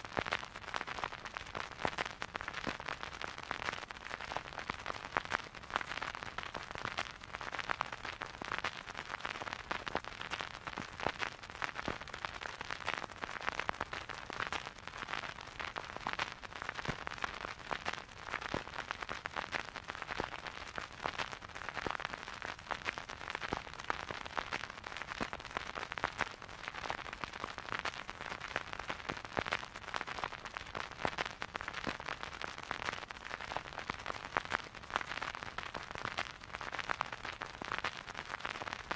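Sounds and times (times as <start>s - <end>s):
vinyl crackle: 0.0s - 38.9s.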